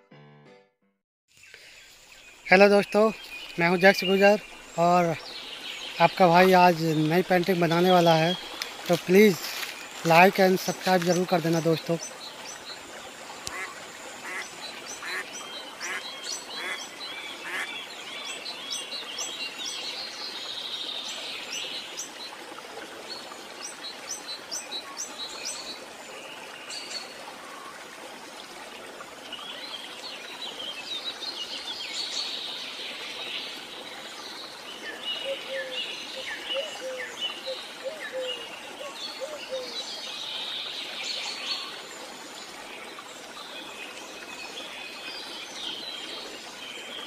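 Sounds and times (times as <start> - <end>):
birds calling and chirping: 1.5 - 19.9, 34.8 - 41.8
outdoor background noise: 8.3 - 47.0.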